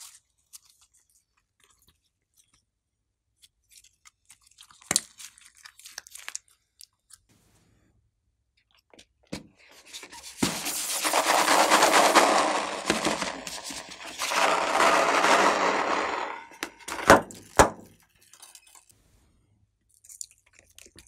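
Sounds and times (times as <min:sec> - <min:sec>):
balloons squeezed and rubbed: 0:09.7 - 0:16.6.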